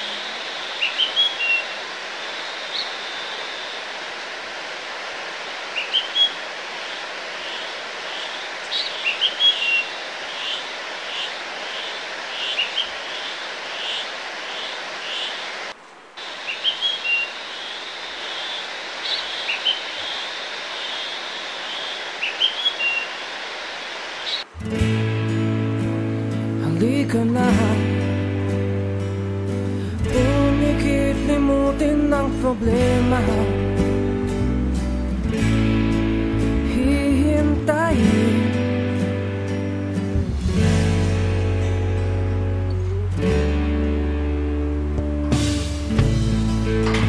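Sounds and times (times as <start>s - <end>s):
small birds chirping: 0.0s - 3.8s, 5.7s - 23.4s, 24.2s - 24.5s
steady hiss: 0.0s - 24.7s.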